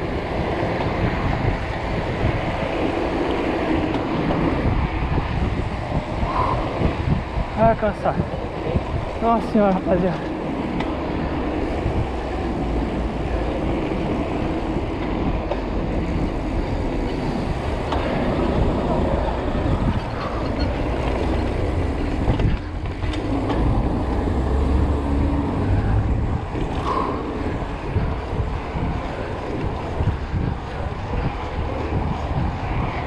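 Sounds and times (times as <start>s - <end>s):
bike tyre road noise: 0.0s - 33.0s
wind rush on microphone: 0.0s - 33.0s.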